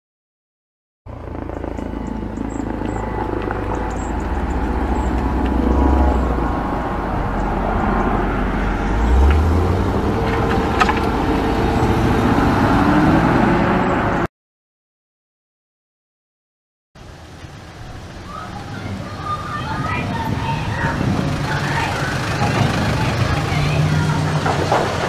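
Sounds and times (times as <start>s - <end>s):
car driving past slowly: 1.1s - 14.3s.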